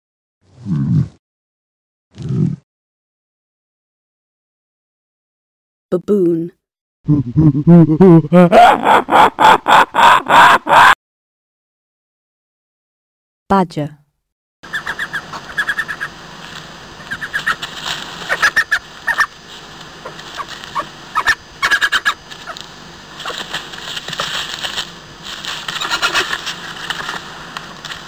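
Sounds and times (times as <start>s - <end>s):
badger calling: 14.7s - 16.2s, 17.0s - 17.6s, 18.2s - 19.4s, 20.0s - 22.6s, 23.2s - 23.6s, 25.7s - 26.4s
steady background hiss: 14.7s - 28.0s.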